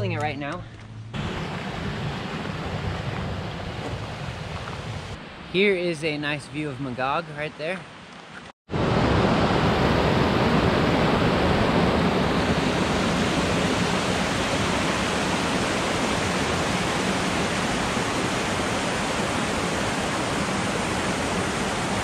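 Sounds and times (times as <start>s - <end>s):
creek rushing over boulders: 10.8s - 22.0s.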